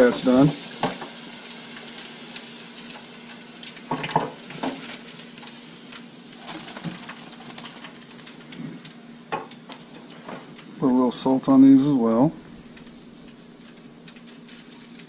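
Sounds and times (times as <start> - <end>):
oil sizzling in deep fryer: 0.0 - 15.0.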